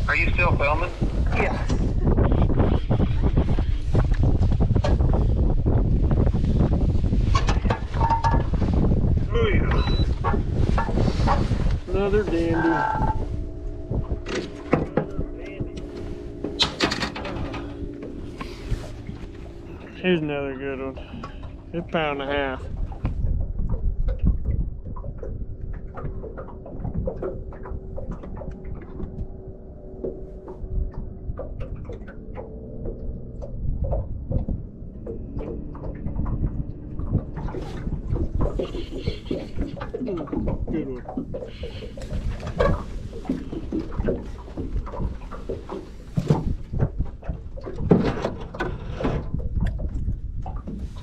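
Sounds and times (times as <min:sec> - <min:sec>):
wind and water rumble: 0:00.0 - 0:51.0
electric motor hum: 0:11.6 - 0:21.8.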